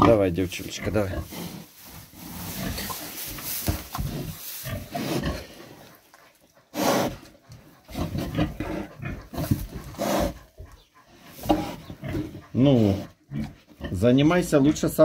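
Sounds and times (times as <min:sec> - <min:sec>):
pig grunting: 0:00.0 - 0:03.1, 0:03.9 - 0:15.0
rustling in straw: 0:00.5 - 0:07.2.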